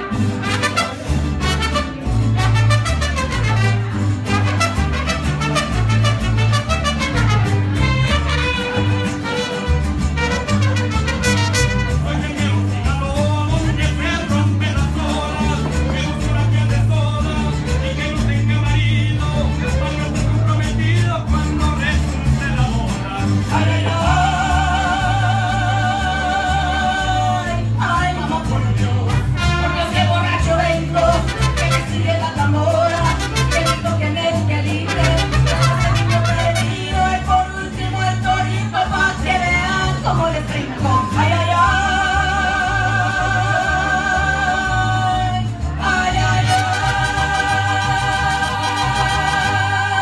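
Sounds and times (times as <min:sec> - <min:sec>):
deep bass line: 0:00.0 - 0:50.0
guitars: 0:00.0 - 0:50.0
amplified person singing: 0:11.3 - 0:50.0.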